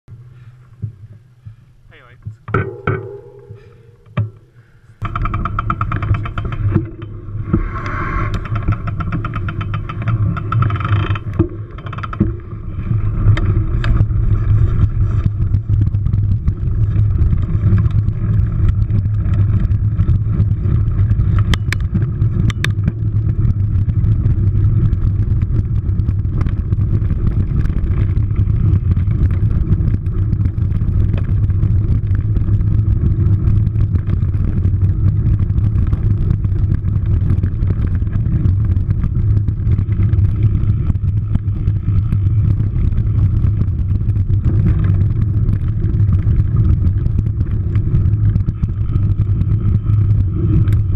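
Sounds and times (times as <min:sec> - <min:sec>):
bike trail noise: 0:00.1 - 0:50.9
wind rumble: 0:00.1 - 0:50.9
bike knocking over bumps: 0:02.2 - 0:07.7, 0:08.4 - 0:23.8.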